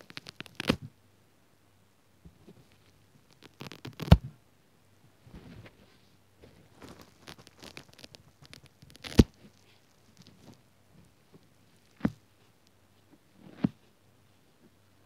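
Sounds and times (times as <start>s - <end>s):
wet sponge crackling and scratching: 0.0s - 0.8s, 2.7s - 4.2s, 6.7s - 10.6s.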